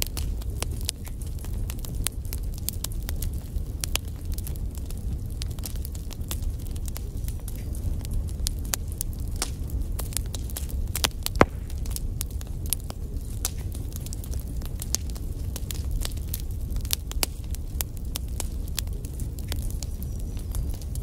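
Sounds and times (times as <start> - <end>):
fire pops and snaps: 0.0 - 21.0
low rumble of burning: 0.0 - 21.0.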